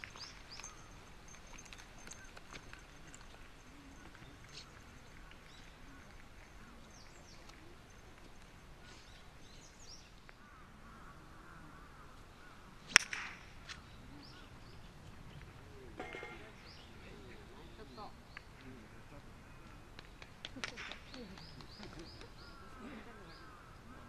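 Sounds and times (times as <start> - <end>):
golf club striking ball: 12.8 - 13.8.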